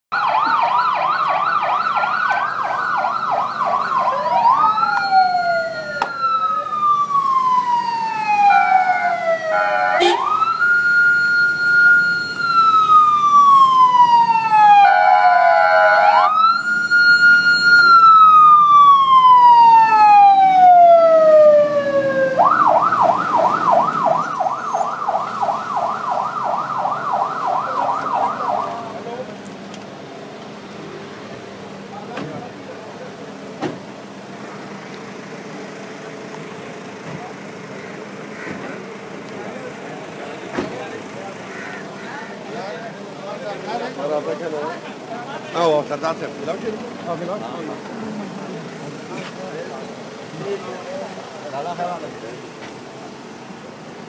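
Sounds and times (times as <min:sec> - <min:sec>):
electronic siren: 0:00.1 - 0:28.8.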